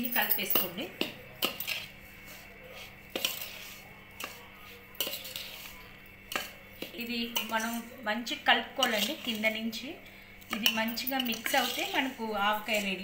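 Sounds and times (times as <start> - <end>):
spoon scraping powder in bowl: 0.0 - 9.8, 10.4 - 13.0
spoon clinking on steel bowl: 6.3 - 7.8, 10.5 - 11.8.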